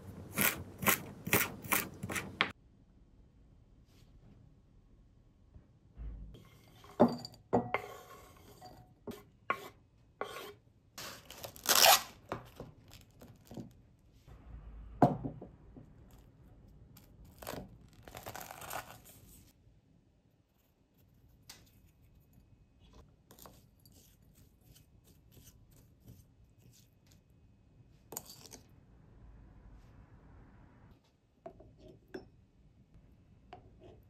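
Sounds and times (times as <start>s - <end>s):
wooden spoon scraping and knocking: 0.0s - 2.5s, 6.4s - 10.6s
cling wrap rustling and tearing: 11.1s - 13.5s, 17.3s - 19.5s.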